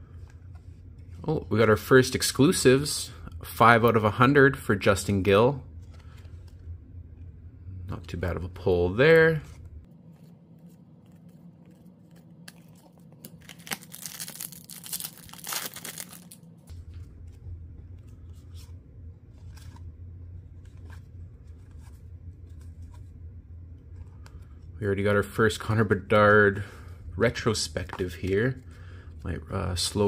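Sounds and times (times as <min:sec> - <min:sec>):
steady low hum: 0:00.0 - 0:30.0
trading cards rustling and scraping: 0:05.8 - 0:06.7, 0:09.3 - 0:24.7, 0:27.2 - 0:30.0.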